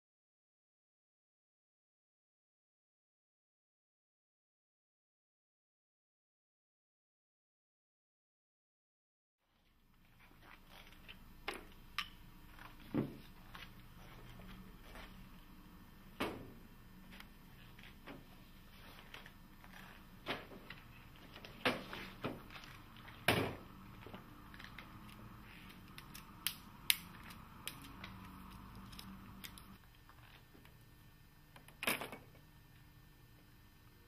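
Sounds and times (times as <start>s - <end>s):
faint steady hum: 9.4s - 34.0s.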